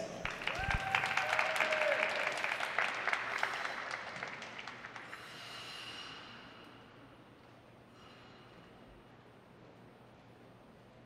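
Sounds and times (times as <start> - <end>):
audience applause: 0.0 - 5.2.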